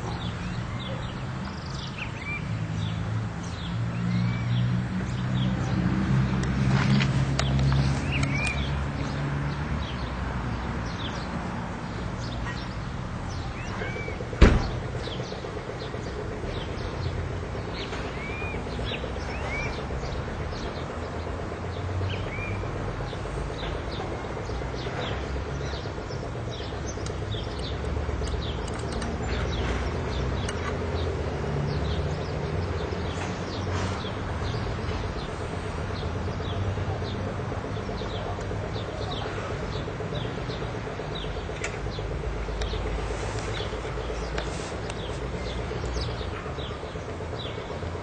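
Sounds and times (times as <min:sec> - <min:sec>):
small birds chirping: 0:00.0 - 0:48.0
steady low rumble: 0:11.7 - 0:48.0
sharp knock: 0:14.4 - 0:14.8.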